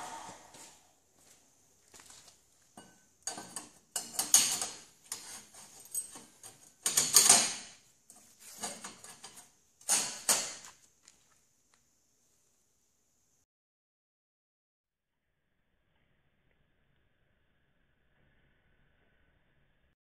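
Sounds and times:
metal bars scraping and clinking: 0:02.8 - 0:10.6.

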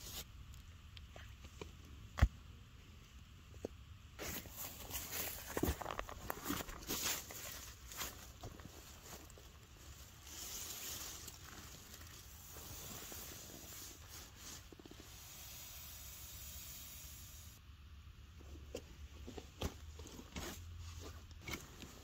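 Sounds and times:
bedding rustling over dry leaves: 0:04.2 - 0:14.8.

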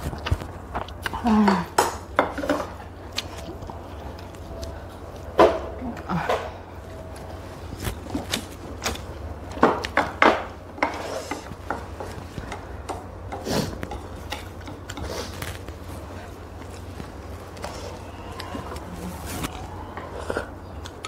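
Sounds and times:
low steady hum: 0:00.0 - 0:21.0
chopsticks clicking against bowls: 0:10.8 - 0:15.8, 0:20.7 - 0:21.0.

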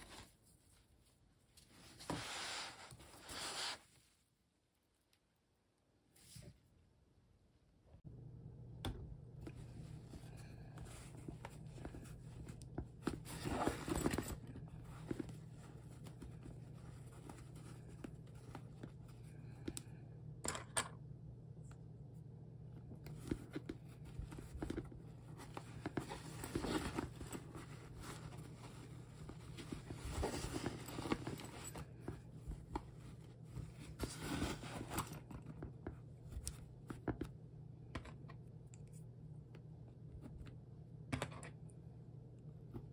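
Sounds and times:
steady low hum: 0:06.9 - 0:42.9
vinyl bag rustling: 0:09.6 - 0:19.3, 0:23.1 - 0:36.4.

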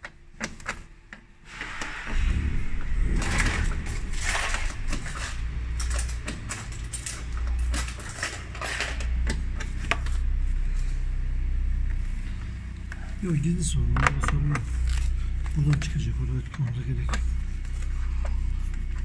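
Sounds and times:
plastic trim rustling and scraping: 0:02.8 - 0:10.2.

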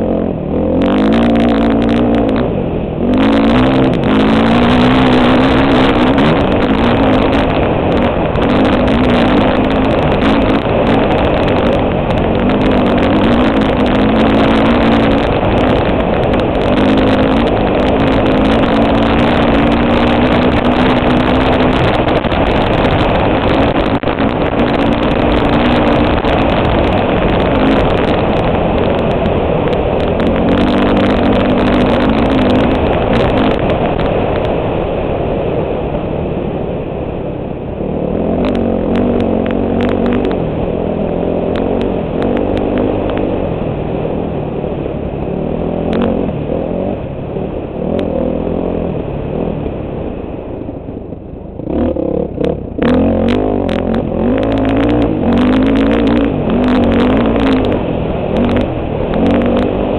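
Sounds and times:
dirt bike engine running hard: 0:00.0 - 0:59.9.

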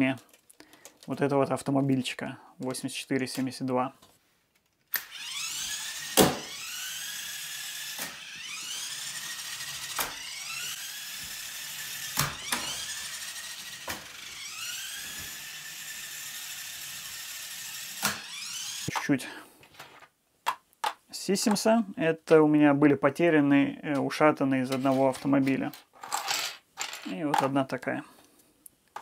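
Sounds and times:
toy car gear drive whining: 0:04.9 - 0:19.0.

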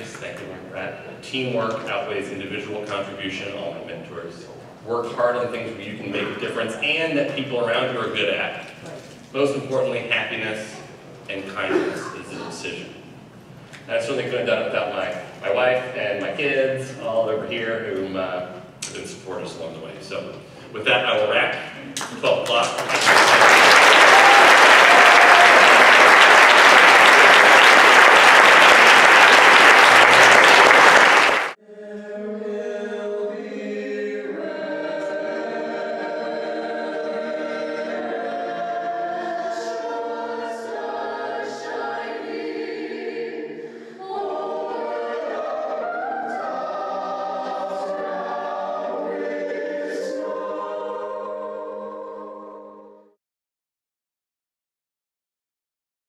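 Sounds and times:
audience applauding: 0:22.5 - 0:31.6
choir singing held chords: 0:23.5 - 0:53.2.

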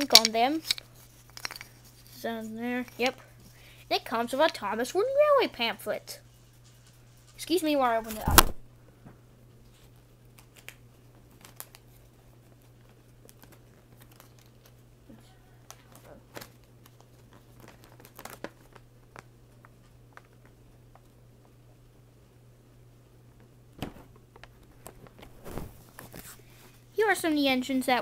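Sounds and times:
steady low hum: 0:00.0 - 0:28.0
small clicks and rustles: 0:09.7 - 0:14.8, 0:15.6 - 0:21.8, 0:24.2 - 0:26.8
packaging crinkling and tearing: 0:10.4 - 0:14.8, 0:15.7 - 0:19.3.

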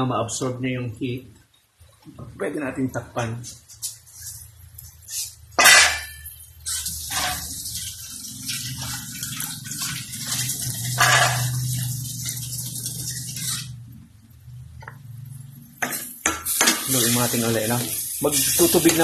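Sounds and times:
meat sizzling in a pan: 0:04.1 - 0:13.8, 0:15.8 - 0:19.0
metal pan clank: 0:05.6 - 0:06.3, 0:11.0 - 0:11.6.

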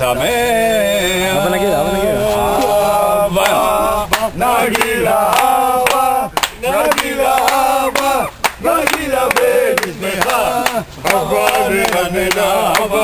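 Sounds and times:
men chanting and singing: 0:00.0 - 0:13.0
hand claps: 0:03.4 - 0:13.0.

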